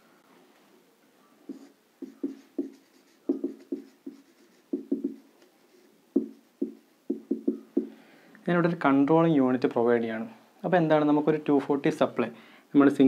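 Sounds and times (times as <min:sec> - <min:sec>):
marker writing on whiteboard: 0:01.4 - 0:07.9.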